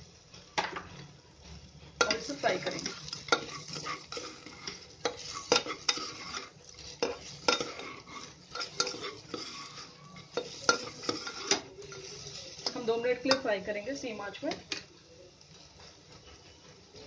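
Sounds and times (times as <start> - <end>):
light sizzle of frying: 0.0 - 17.0
spatula scraping metal pot: 2.0 - 13.7.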